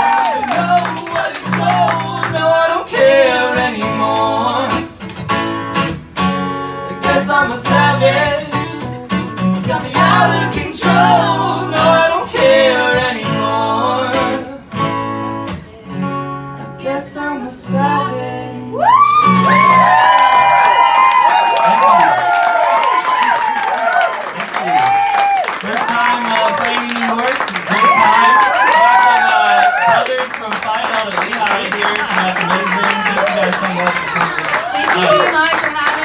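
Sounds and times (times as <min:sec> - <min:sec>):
man and woman singing: 0:00.1 - 0:05.0, 0:06.9 - 0:09.0, 0:09.6 - 0:14.7, 0:16.6 - 0:19.1, 0:31.3 - 0:35.4
acoustic guitar strumming: 0:00.5 - 0:20.5.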